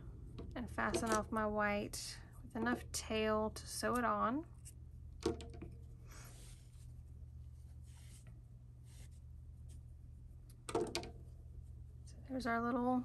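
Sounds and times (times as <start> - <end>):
faint yarn rustling: 6.0 - 10.0.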